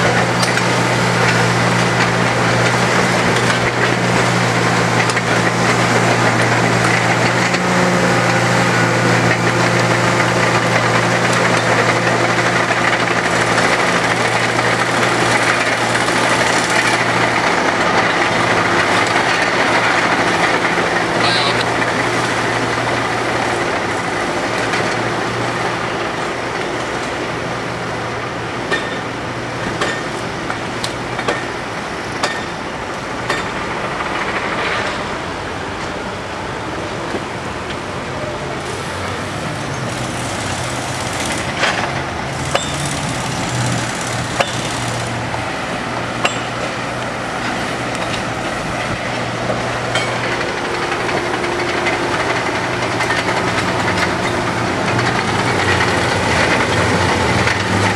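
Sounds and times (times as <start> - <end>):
diesel machinery engines running: 0.0 - 57.9
metallic clinks of tools on rails: 28.7 - 29.0, 31.2 - 31.5, 33.3 - 35.1, 39.7 - 45.2, 46.2 - 46.7, 48.8 - 52.4.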